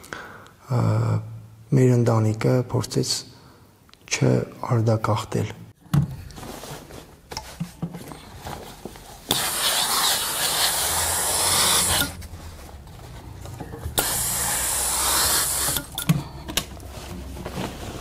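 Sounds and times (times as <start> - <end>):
steam iron hissing steam: 9.3 - 12.2, 13.9 - 16.0.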